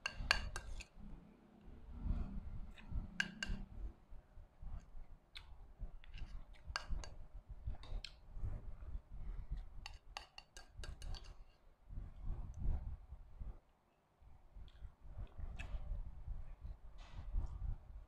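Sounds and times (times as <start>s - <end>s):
spoon scraping ceramic bowl: 0.0s - 1.0s, 2.8s - 3.7s, 9.9s - 11.6s.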